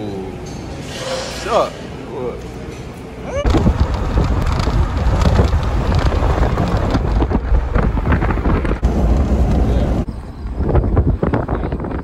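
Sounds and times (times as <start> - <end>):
car road noise rumbling: 3.4 - 12.0
wind buffeting microphone: 3.4 - 12.0.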